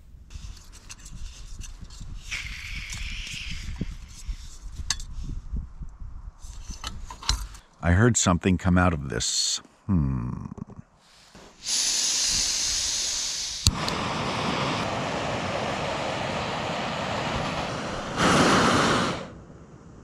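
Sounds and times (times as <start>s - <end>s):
gas stove hissing: 11.2s - 19.3s.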